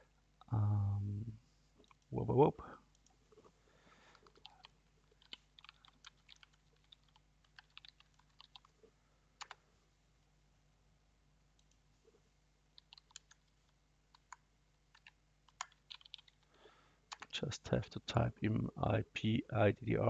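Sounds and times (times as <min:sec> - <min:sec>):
faint keyboard typing: 0:01.7 - 0:02.1, 0:02.8 - 0:09.7, 0:11.5 - 0:18.2.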